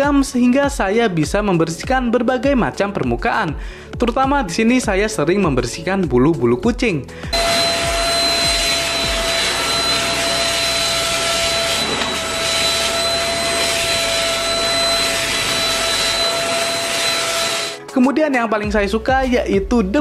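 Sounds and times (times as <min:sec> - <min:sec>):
vacuum cleaner running: 0:07.3 - 0:17.8.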